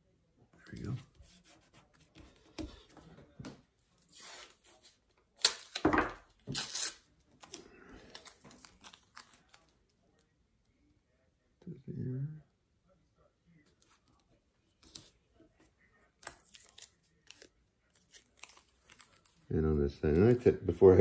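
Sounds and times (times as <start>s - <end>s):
masking tape ripping: 5.4s - 9.6s.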